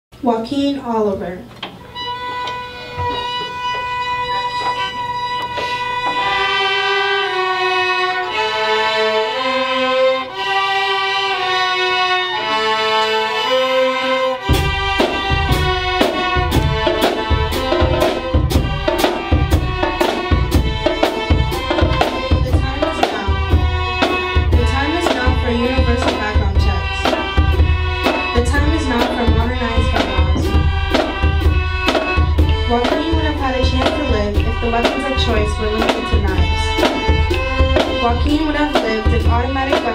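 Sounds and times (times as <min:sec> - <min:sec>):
violins playing slow melody: 0:01.8 - 0:39.9
bass drum and snare drums beat: 0:14.4 - 0:39.9.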